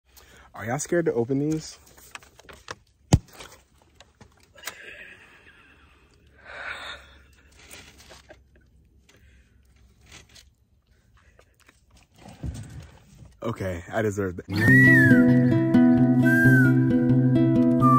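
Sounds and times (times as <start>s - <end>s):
cardboard tube scraping and rustling: 7.5s - 8.5s, 9.8s - 10.6s.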